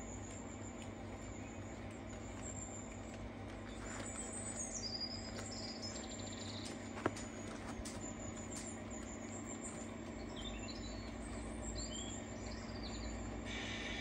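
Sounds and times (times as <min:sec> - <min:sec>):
bird chirping: 0:00.0 - 0:13.5.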